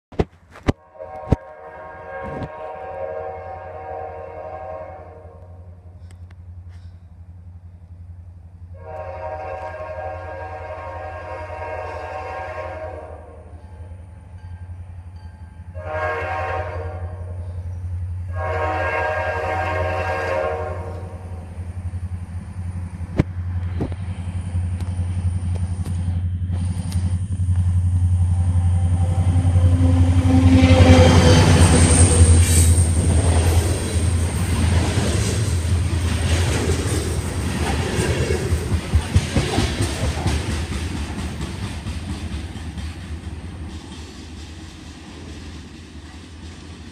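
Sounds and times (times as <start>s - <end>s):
diesel locomotive engine hum: 0.2s - 46.9s
locomotive horn blasts: 0.8s - 5.8s, 8.7s - 13.6s, 15.7s - 21.5s, 28.2s - 33.6s.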